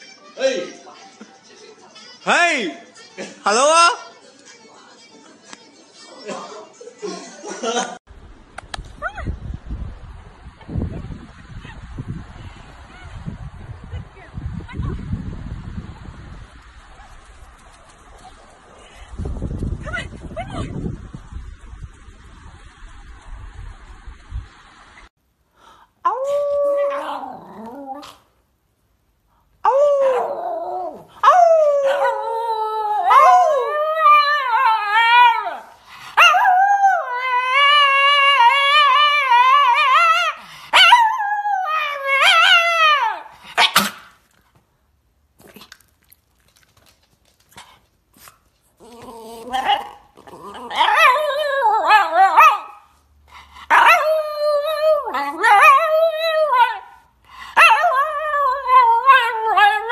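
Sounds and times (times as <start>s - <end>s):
dog howling: 29.7s - 43.3s, 48.8s - 52.8s.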